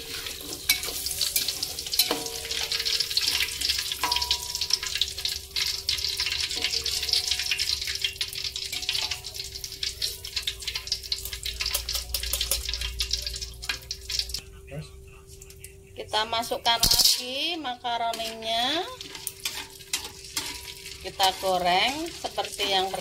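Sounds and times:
hot oil sizzling and crackling: 0.0 - 14.4, 15.5 - 23.0
metal spatula clinking on wok: 0.7 - 5.0, 11.6 - 12.9, 16.8 - 17.3, 19.0 - 21.4.

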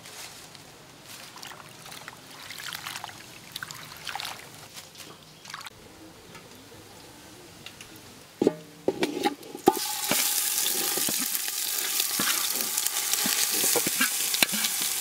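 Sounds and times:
water splashing in metal basin: 1.3 - 4.6, 9.7 - 15.0.

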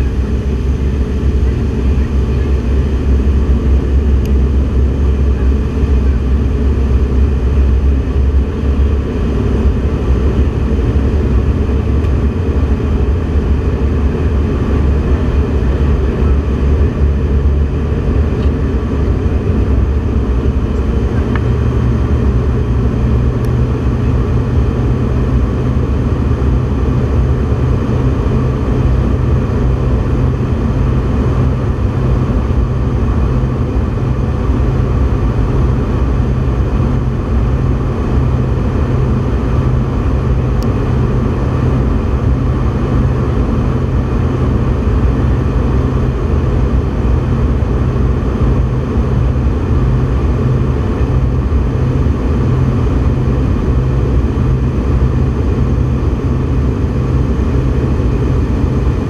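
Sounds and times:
aircraft cabin engine rumble: 0.0 - 59.0.

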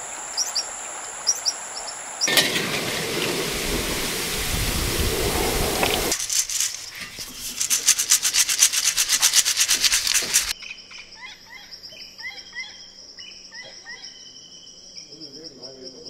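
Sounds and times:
birds chirping: 0.0 - 10.6
insects trilling: 0.0 - 16.0
loud rhythmic rasping: 6.1 - 10.5.

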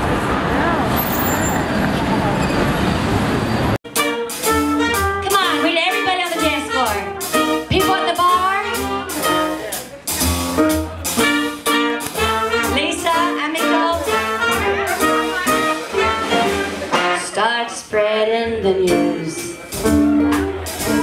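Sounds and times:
swing jazz band: 3.9 - 21.0
woman singing: 17.0 - 19.6.

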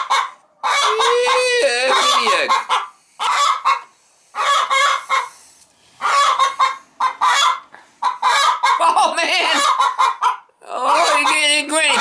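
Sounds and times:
hen squawking loudly: 0.0 - 5.4, 6.0 - 12.0.

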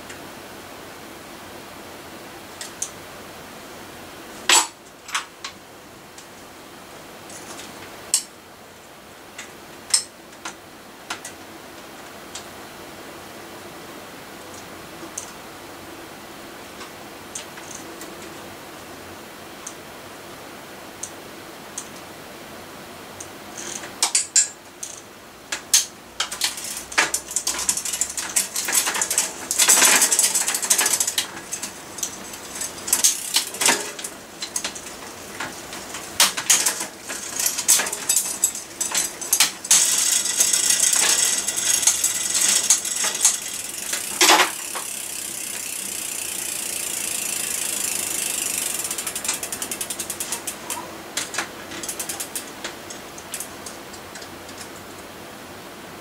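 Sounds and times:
bike freewheel ratcheting: 23.6 - 53.6
bike chain and gears clicking: 23.6 - 54.3
ticks slowing down: 26.3 - 54.6.

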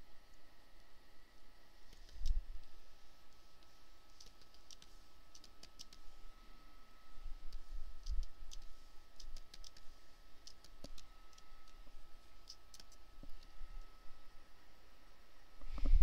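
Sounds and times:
mouse and keyboard clicking: 1.9 - 2.7, 3.6 - 6.1, 7.5 - 13.5.

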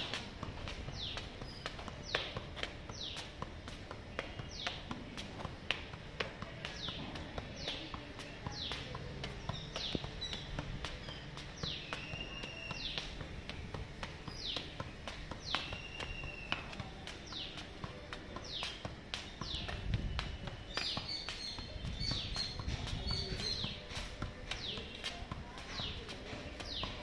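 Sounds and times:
football taps on foot: 0.0 - 27.0
bird chirping: 11.1 - 13.0, 15.4 - 16.6.

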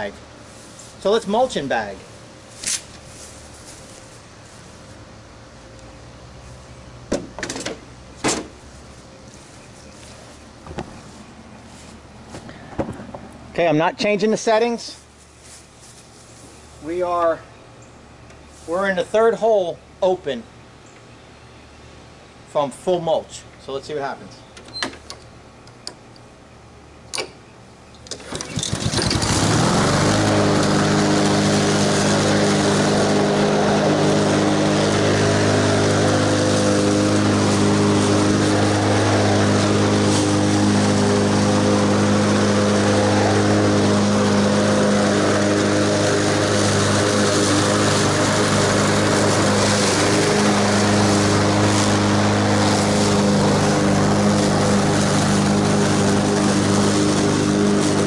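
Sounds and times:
mower blade cutting grass: 0.0 - 5.0, 28.0 - 58.0
lawn mower engine running: 0.0 - 17.4, 27.9 - 58.0.

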